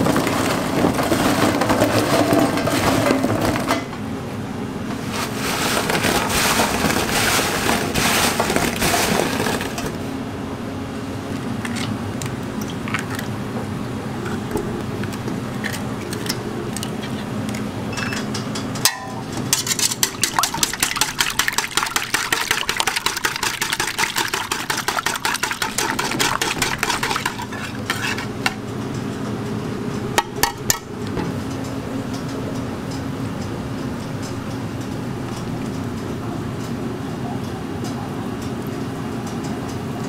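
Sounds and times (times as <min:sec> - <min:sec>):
low machine hum: 0:00.0 - 0:40.0
whisk beating eggs in metal bowl: 0:19.5 - 0:28.4.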